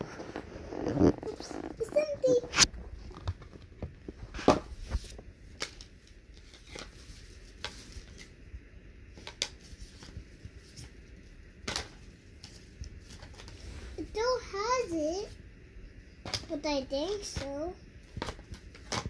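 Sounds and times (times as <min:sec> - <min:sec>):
cardboard cards tapping and rustling: 0:17.3 - 0:19.0.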